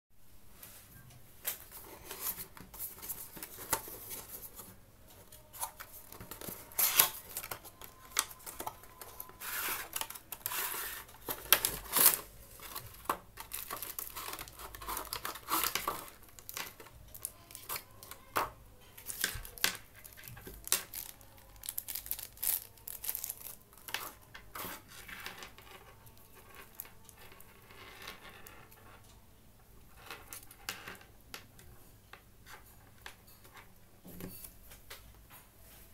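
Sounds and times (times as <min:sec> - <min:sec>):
cardboard and plastic crinkling: 0:01.5 - 0:27.6.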